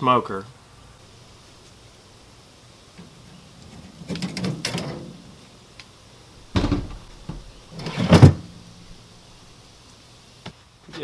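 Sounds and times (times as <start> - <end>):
wire rack rattling: 4.0 - 5.3, 6.5 - 9.0
door knocking shut: 6.5 - 7.6.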